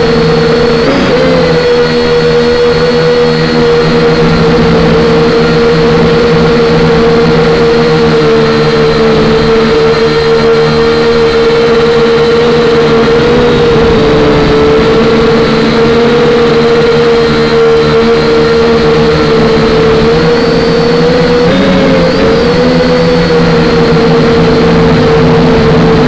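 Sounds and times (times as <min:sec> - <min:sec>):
model aircraft motor whine: 0:00.0 - 0:26.0.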